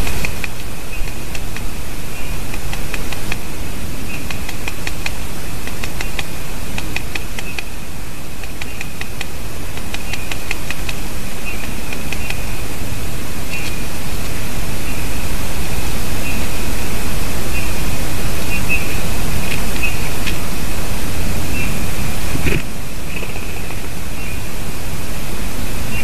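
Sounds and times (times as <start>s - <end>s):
woodpecker tapping on wood: 0.0s - 1.7s, 2.4s - 3.5s, 4.1s - 7.8s, 8.4s - 12.6s
steady hiss: 0.0s - 26.0s.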